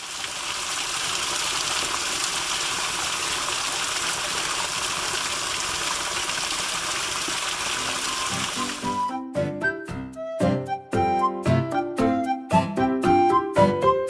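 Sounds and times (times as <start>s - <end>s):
waterfall splashing into pool: 0.0s - 9.0s.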